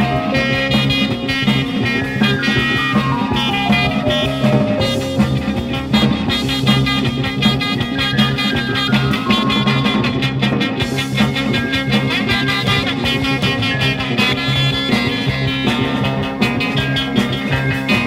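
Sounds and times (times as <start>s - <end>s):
instrumental band music: 0.0s - 18.0s.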